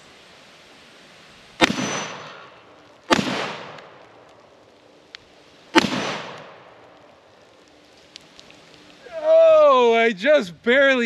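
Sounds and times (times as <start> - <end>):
shotgun shots echoing: 1.6 - 4.0, 5.7 - 6.8.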